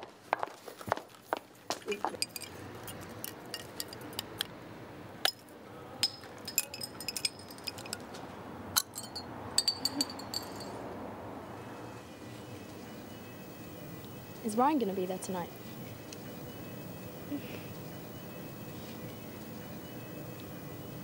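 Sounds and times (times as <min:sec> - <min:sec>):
glass bottles clinking: 0:06.0 - 0:08.0, 0:08.8 - 0:10.8
low background hiss: 0:11.4 - 0:21.0.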